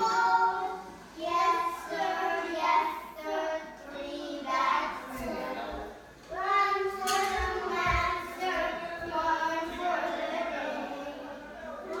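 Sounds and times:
young child singing: 0.0 - 12.0.

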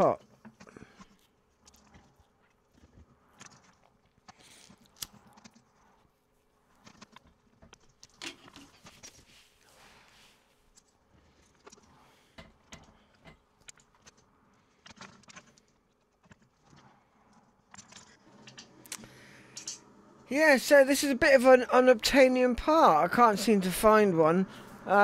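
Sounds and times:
faint clicks and metallic taps: 10.7 - 19.9.

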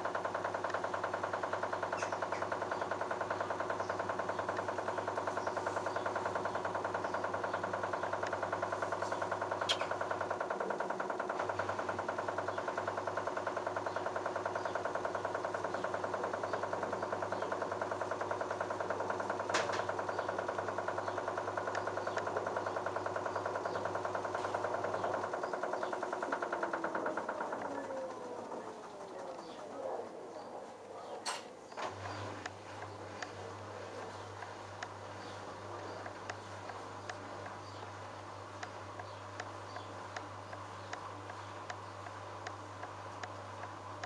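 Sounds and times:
sharp clicks: 0.0 - 29.7, 34.0 - 37.8, 38.5 - 44.0
washing machine running: 0.0 - 29.7.

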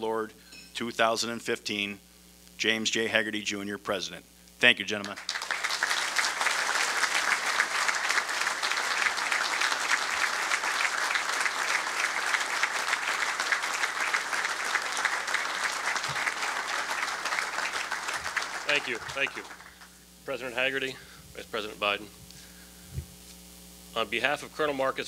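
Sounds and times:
large audience applauding: 5.0 - 20.0.

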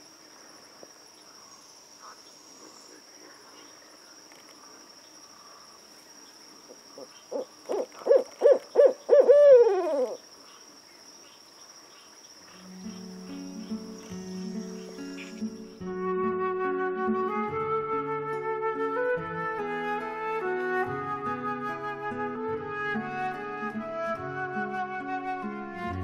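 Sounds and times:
crickets trilling: 0.0 - 16.0
owl hooting: 6.7 - 10.2.

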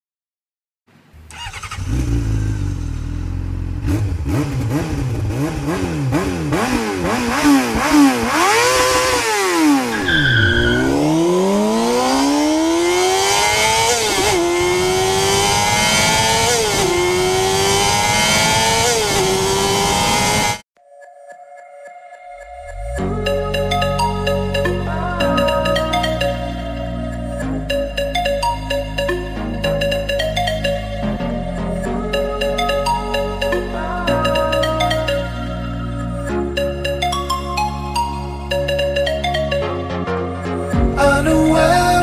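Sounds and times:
motorcycle engine revving: 1.2 - 20.6.

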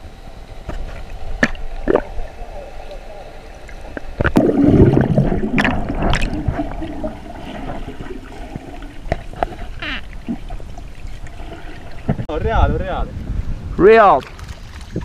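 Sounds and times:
underwater gurgling and rushing water: 0.0 - 12.3.

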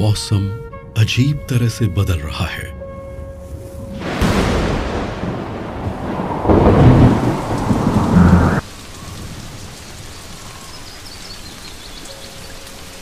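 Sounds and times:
thunder rumbling: 3.9 - 9.8
rain falling on grass: 4.0 - 13.0.

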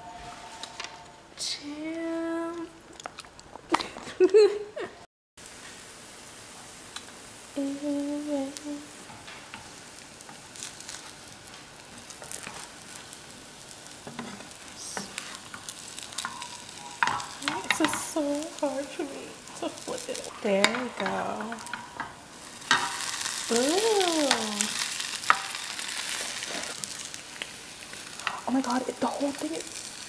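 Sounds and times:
wooden spatula scraping a pan: 0.0 - 1.0, 10.6 - 30.0
bread sizzling in a pan: 5.4 - 30.0
person humming: 7.6 - 8.9.

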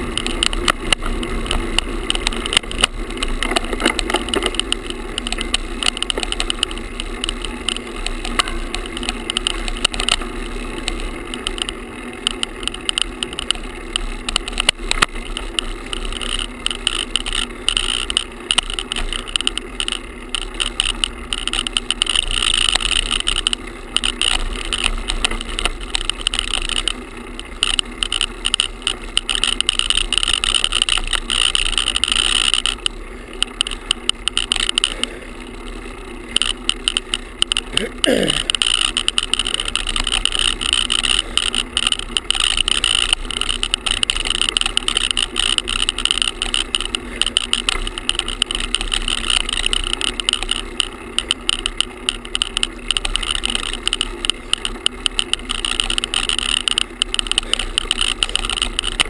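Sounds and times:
camera rattling against handlebars: 0.0 - 59.0.

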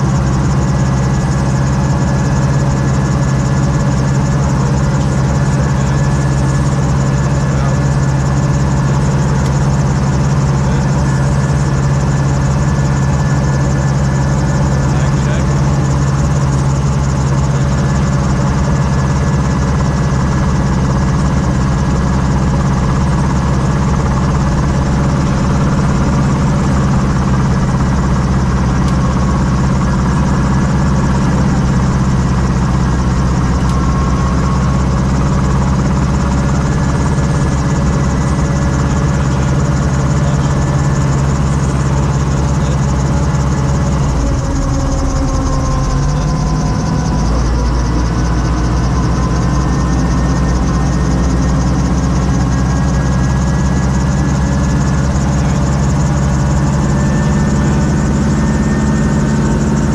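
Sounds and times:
helicopter engine and rotor running: 0.0 - 59.9.

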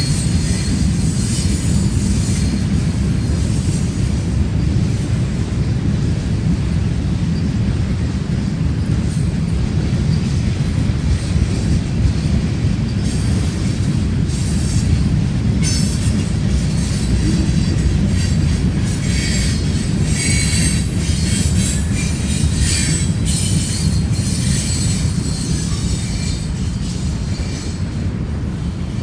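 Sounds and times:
freight train rumbling: 0.0 - 29.0
high-pitched wheel squeal: 19.0 - 27.8.

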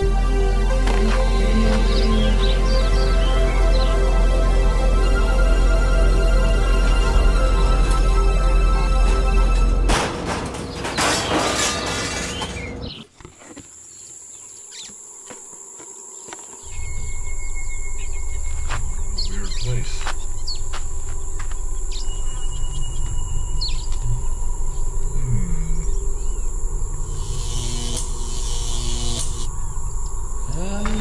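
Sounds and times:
music cue: 0.0 - 10.8
insects droning: 0.0 - 31.0
bird chirps: 16.6 - 26.6.

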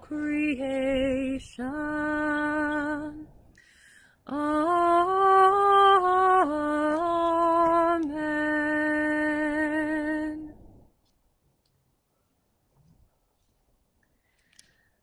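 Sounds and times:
woman singing unaccompanied: 0.0 - 3.4, 4.2 - 10.6.

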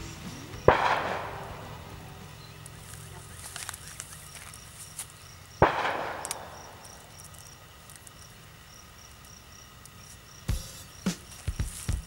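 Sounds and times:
crickets chirping: 0.0 - 12.0
bow shot crack: 0.6 - 1.9, 5.6 - 7.0.

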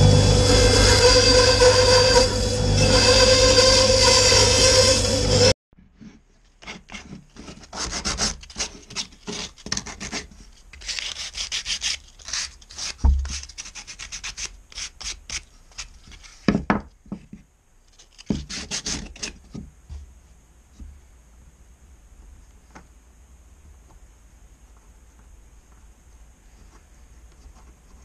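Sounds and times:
sandpaper rubbing on wood: 7.7 - 15.9.

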